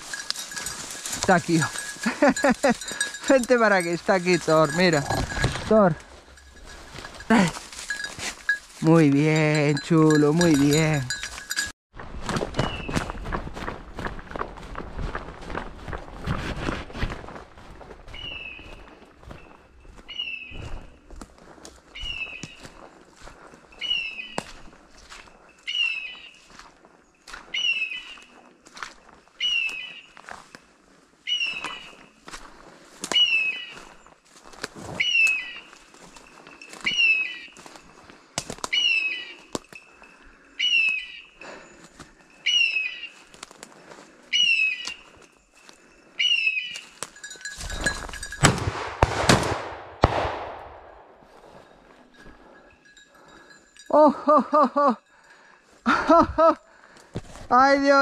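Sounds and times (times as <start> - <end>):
dog collar beeping: 0.0 - 11.7, 46.7 - 48.4
footsteps in dry leaves: 0.0 - 48.4, 51.0 - 53.4.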